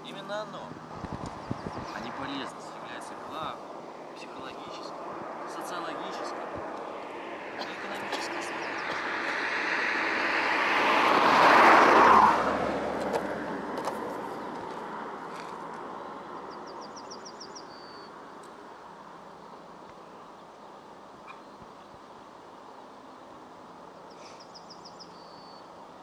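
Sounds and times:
car driving past: 1.8s - 16.6s.

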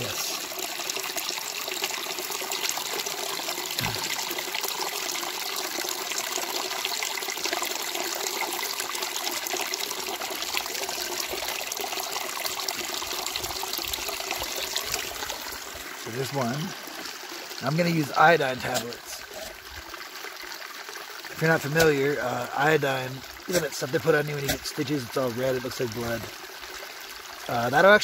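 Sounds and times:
bottle filling with water: 0.0s - 27.5s
water trickling over rocks: 0.0s - 28.0s.

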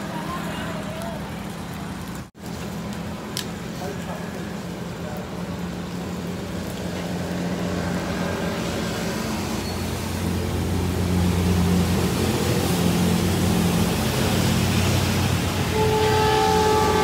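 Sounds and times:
rain hissing: 0.0s - 17.0s.

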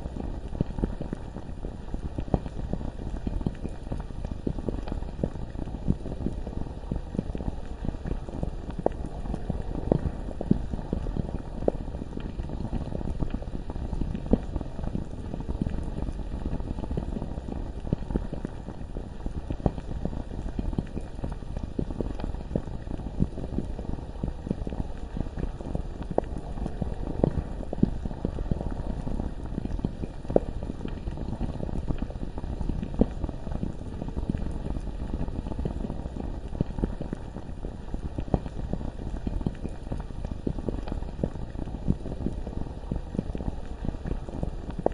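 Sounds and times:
lava bubbling and popping: 0.0s - 44.9s.

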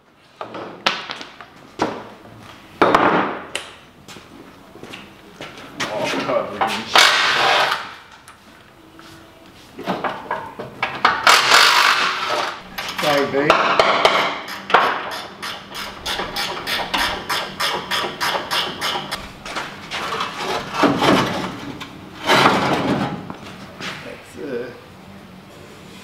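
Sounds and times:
sheet metal clanking and scraping: 10.1s - 23.4s.

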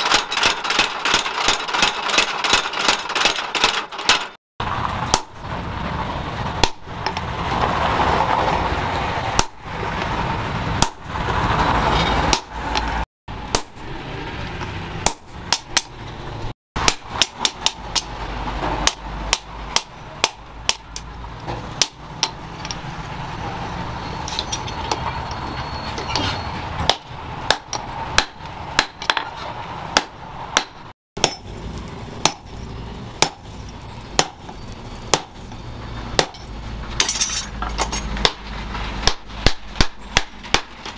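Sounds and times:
hammer striking metal on anvil: 6.6s - 7.2s, 9.4s - 9.7s, 10.8s - 11.1s, 13.5s - 13.8s, 15.0s - 15.9s, 16.8s - 22.8s, 26.8s - 29.3s, 29.9s - 31.5s, 33.2s - 33.6s, 34.2s - 35.4s, 36.2s - 40.9s.

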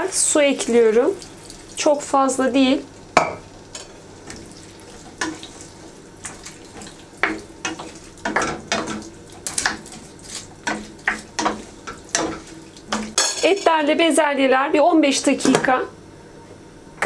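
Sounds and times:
low sizzle in pan: 0.0s - 15.8s
wooden spoon scraping a pan: 4.9s - 13.2s.

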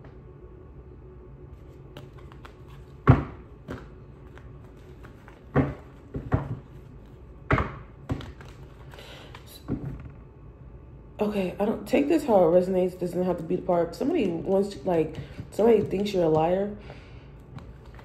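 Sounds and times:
cards being shuffled: 1.6s - 7.2s, 8.1s - 9.6s.

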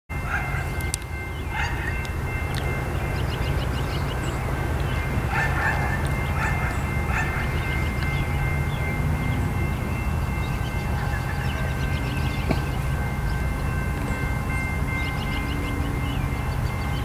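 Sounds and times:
birds calling: 0.2s - 17.0s.

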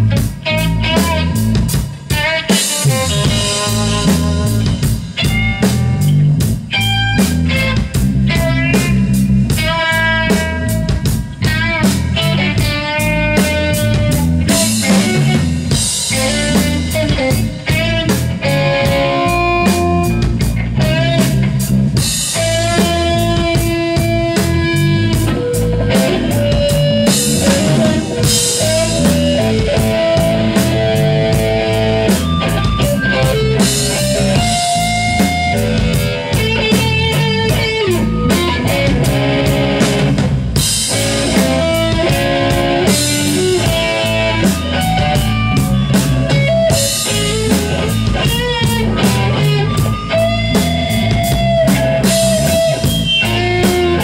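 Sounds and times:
drum kit with cymbal hits: 0.0s - 54.0s
electric bass line: 0.0s - 54.0s
rock band playing: 0.0s - 54.0s
melody of held notes: 21.9s - 54.0s.

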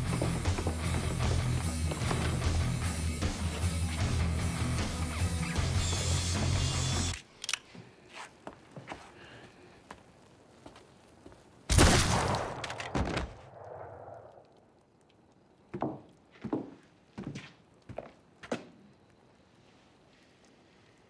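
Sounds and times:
revolver gunshot: 11.7s - 14.4s.

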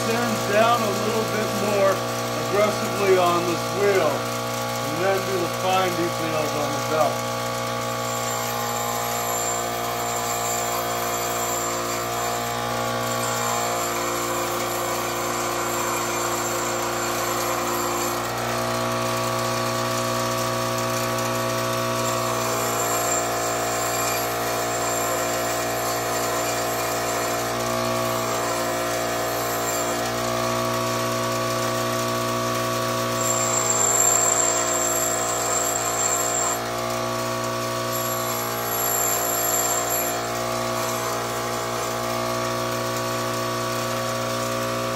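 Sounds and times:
bench grinder motor humming: 0.0s - 44.9s
grinding wheel on metal: 0.0s - 44.9s.

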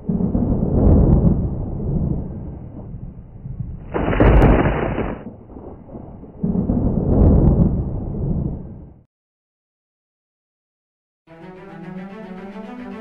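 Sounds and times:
deep thunder-like rumble: 0.0s - 9.1s
harsh noise burst with sharp crack: 3.9s - 5.3s.

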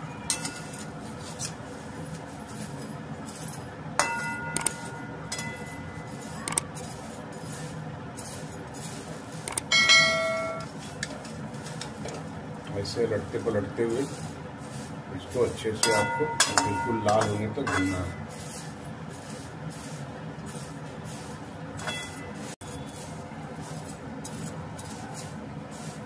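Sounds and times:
spoon clanging on a pan: 0.3s - 0.9s, 4.0s - 6.3s, 9.6s - 10.7s, 15.8s - 18.2s, 21.8s - 22.6s
metal spoon scraping a pan: 0.3s - 11.9s, 12.7s - 26.0s.

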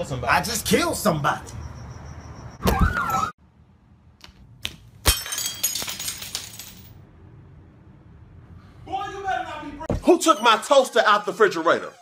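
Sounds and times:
glass smashing: 5.0s - 7.0s.

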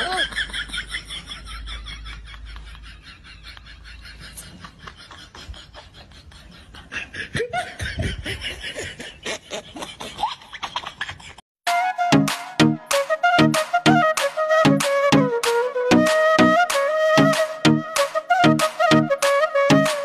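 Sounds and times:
people chuckling: 0.0s - 11.4s.

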